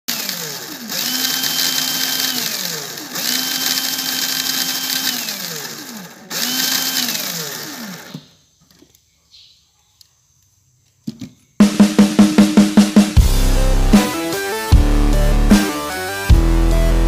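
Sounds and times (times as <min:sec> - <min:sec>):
electric motor and gears whining: 0:00.1 - 0:08.3.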